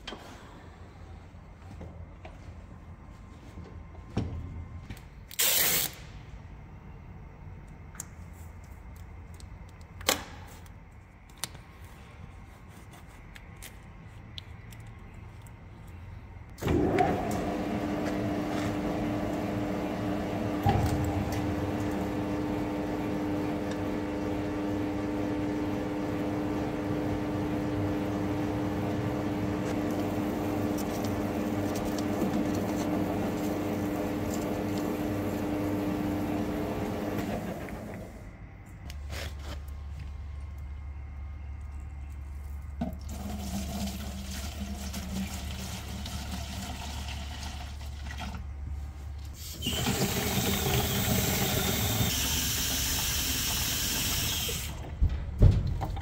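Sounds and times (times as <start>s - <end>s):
tape tearing clicks: 5.3s - 6.0s.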